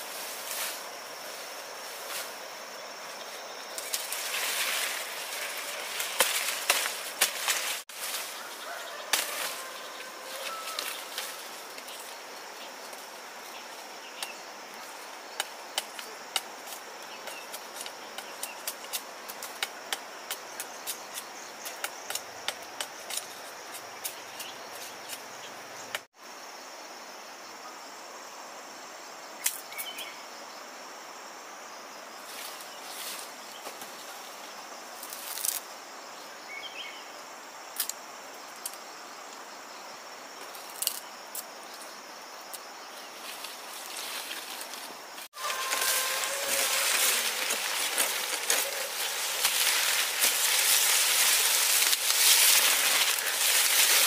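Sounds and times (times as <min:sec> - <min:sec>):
insects droning: 0:00.0 - 0:54.0
machete chopping sugarcane: 0:06.1 - 0:07.8.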